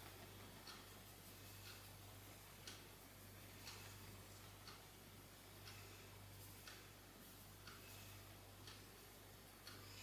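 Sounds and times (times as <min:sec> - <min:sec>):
low steady hum: 0:00.0 - 0:10.0
faint tick: 0:02.6 - 0:02.9, 0:03.5 - 0:04.9, 0:05.6 - 0:05.8, 0:06.6 - 0:07.0, 0:07.6 - 0:08.9, 0:09.6 - 0:10.0.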